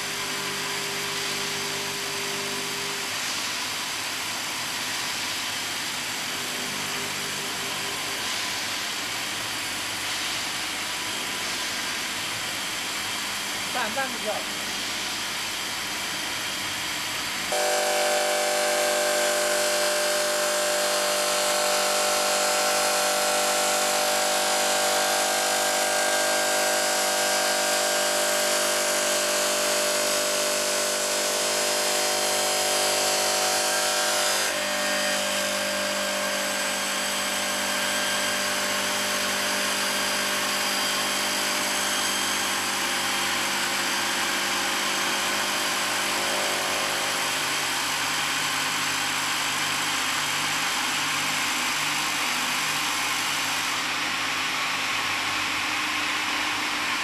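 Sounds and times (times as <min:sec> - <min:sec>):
stone saw whining: 0:13.4 - 0:14.7, 0:15.3 - 0:57.0.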